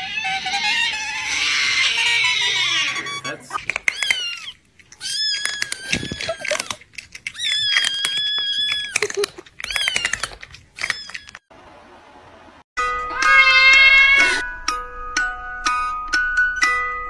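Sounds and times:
cat crying: 0:00.0 - 0:11.4, 0:13.1 - 0:14.4
cat chewing crunchily: 0:04.7 - 0:11.2.

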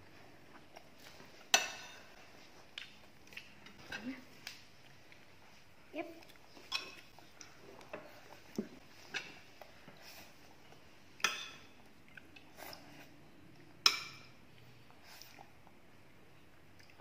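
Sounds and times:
metal spoon clinking on plates: 0:01.5 - 0:02.1, 0:06.6 - 0:07.1, 0:11.2 - 0:11.8, 0:13.8 - 0:14.4.

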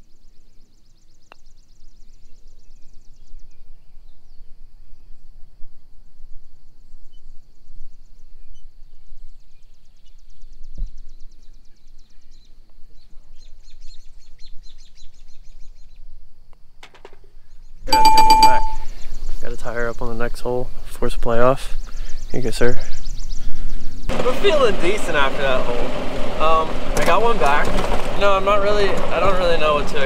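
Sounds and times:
wind rumble on microphone: 0:01.8 - 0:16.5.

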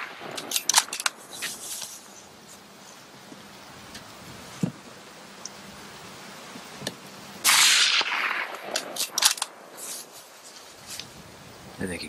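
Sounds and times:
faint clicks: 0:05.4 - 0:05.6
suppressed rifle shot: 0:07.4 - 0:09.6.

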